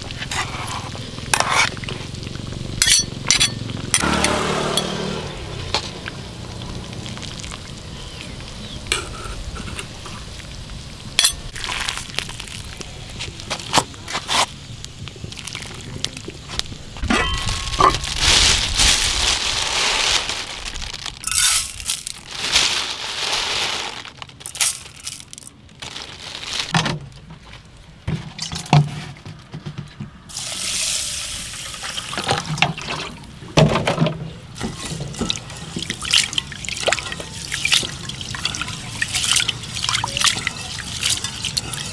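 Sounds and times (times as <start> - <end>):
metal clinks on pot and lid: 2.8 - 3.6
water pouring into pot: 6.0 - 8.4, 9.5 - 12.8, 30.3 - 33.2, 34.6 - 41.9.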